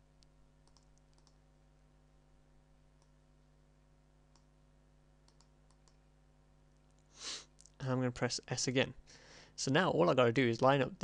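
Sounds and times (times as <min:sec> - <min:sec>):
faint steady hum: 0:00.0 - 0:11.0
computer mouse clicks: 0:00.2 - 0:01.4, 0:05.2 - 0:06.0.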